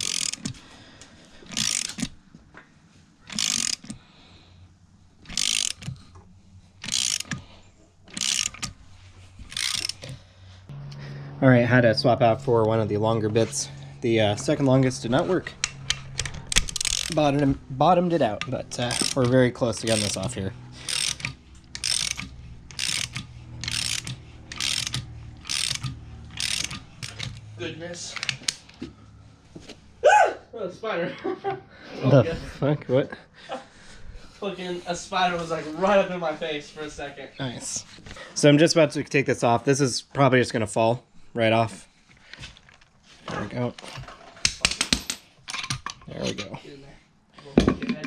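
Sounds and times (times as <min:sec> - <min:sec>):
ratchet wrench clicking: 0:00.0 - 0:00.6, 0:01.5 - 0:02.2, 0:03.3 - 0:04.0, 0:05.2 - 0:06.1, 0:06.8 - 0:07.5, 0:08.1 - 0:08.8, 0:09.5 - 0:10.2, 0:14.9 - 0:17.4, 0:18.3 - 0:27.5.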